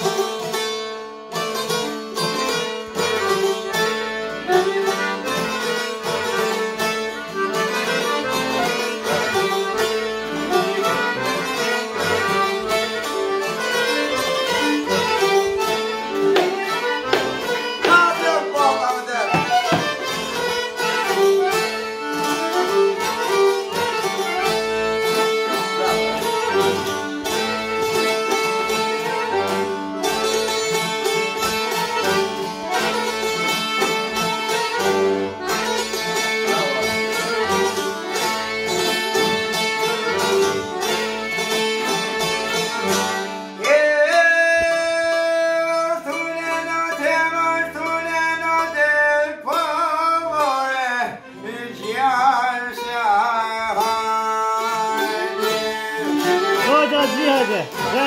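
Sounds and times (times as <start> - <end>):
folk music on accordion and strings: 0.0 - 58.0
man singing: 17.8 - 19.6, 43.6 - 58.0.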